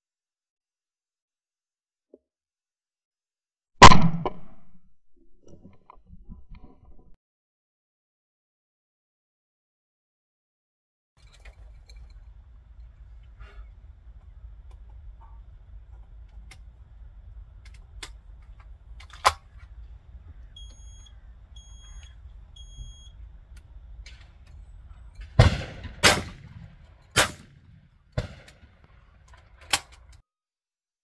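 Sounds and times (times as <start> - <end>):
shotgun shots: 3.8 - 4.6, 23.2 - 30.0
faint bangs: 11.2 - 30.2
low steady rumble: 11.2 - 30.2
short high electronic beeps: 20.6 - 23.2.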